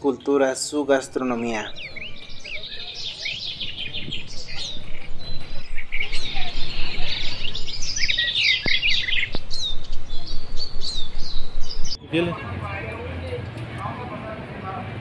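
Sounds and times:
birds chirping in chorus: 0:00.0 - 0:12.0.

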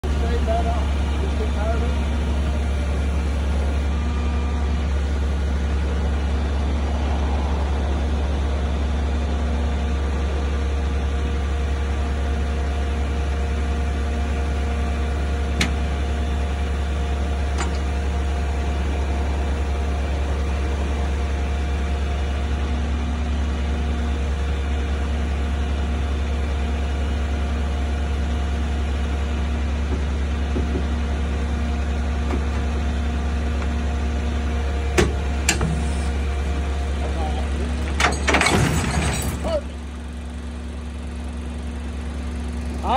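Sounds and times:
truck engine idling: 0:00.0 - 0:42.9
steady tones: 0:03.0 - 0:11.4.

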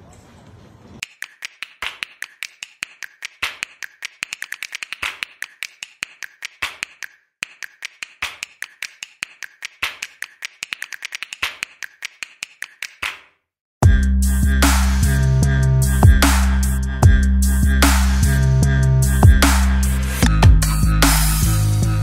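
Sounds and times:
rapid typing-style clicks: 0:01.0 - 0:13.2.

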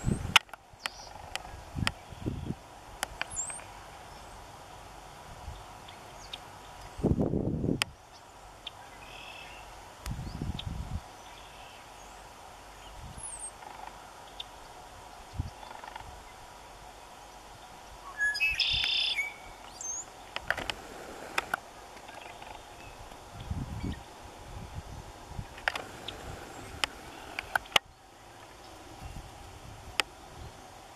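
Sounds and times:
small birds chirping: 0:00.0 - 0:04.5, 0:05.4 - 0:07.1, 0:07.8 - 0:29.6
loud brief bird call: 0:18.1 - 0:19.5.

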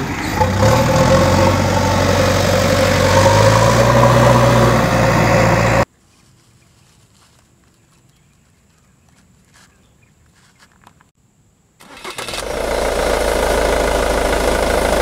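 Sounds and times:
vehicle engine idling: 0:12.1 - 0:15.0.

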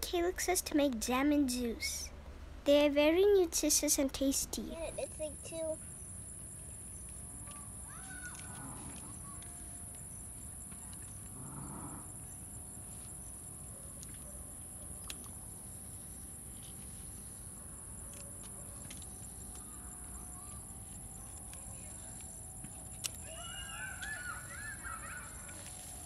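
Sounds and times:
insects chirring: 0:05.8 - 0:26.0.

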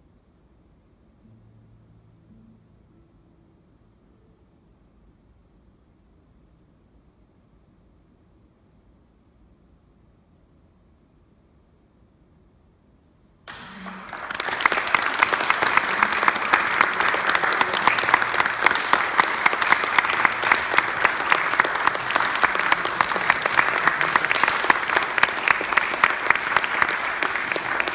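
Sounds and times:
audience applauding: 0:13.5 - 0:27.9.

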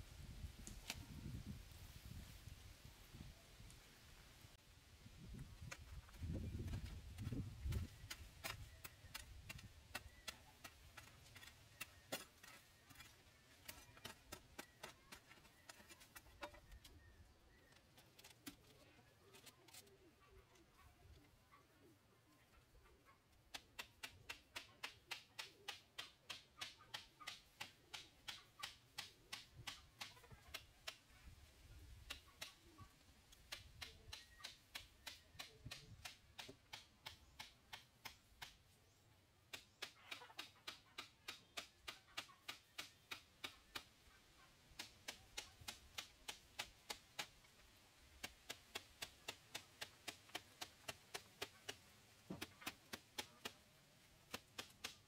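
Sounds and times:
sharp evenly spaced taps: 0:33.3 - 0:38.7.

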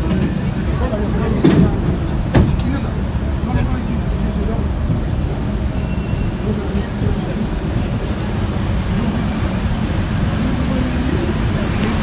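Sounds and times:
metro car rumble: 0:00.0 - 0:12.0
passengers' voices: 0:00.0 - 0:12.0.

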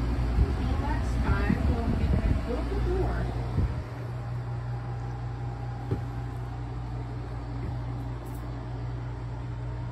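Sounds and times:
low mechanical hum of appliance: 0:00.0 - 0:09.9.

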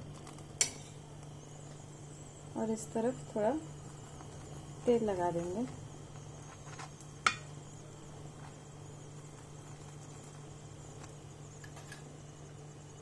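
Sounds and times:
spatula tapping on griddle: 0:07.2 - 0:07.6.

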